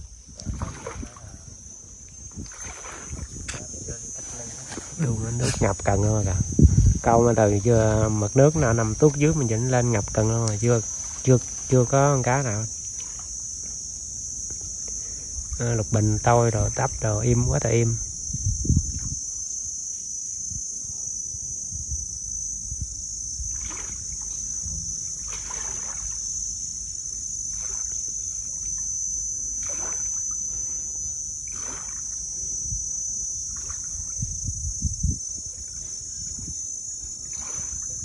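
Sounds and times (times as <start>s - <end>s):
insects chorus: 0.0s - 38.0s
water lapping against concrete: 0.3s - 6.0s, 8.4s - 13.8s, 23.5s - 26.4s, 27.5s - 28.8s, 29.4s - 30.8s, 31.4s - 32.3s, 37.0s - 38.0s
low rumble: 24.3s - 25.4s.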